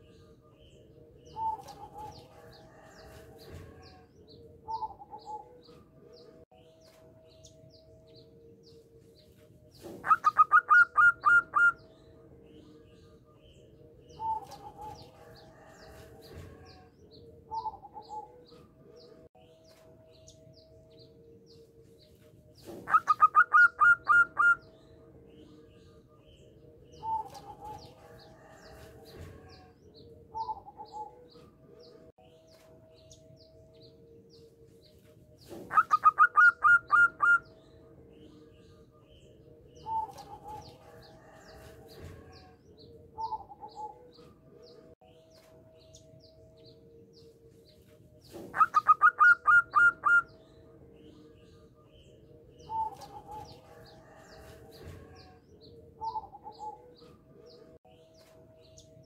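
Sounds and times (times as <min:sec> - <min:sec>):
dove cooing: 0:01.3 - 0:04.0, 0:04.6 - 0:05.6, 0:09.8 - 0:11.8, 0:22.6 - 0:24.6, 0:35.5 - 0:37.4, 0:43.2 - 0:44.2, 0:48.4 - 0:50.3, 0:56.0 - 0:57.0.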